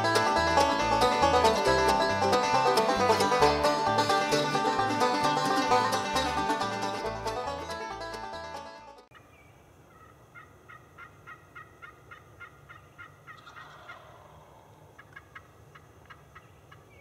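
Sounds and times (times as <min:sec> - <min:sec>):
faint turkey call yelps: 0:09.1 - 0:17.0.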